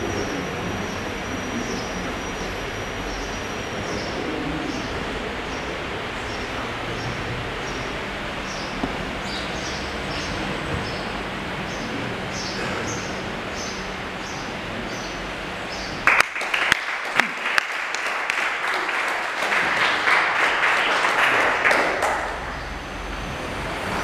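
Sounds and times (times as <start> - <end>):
small audience applauding: 16.0 - 22.8.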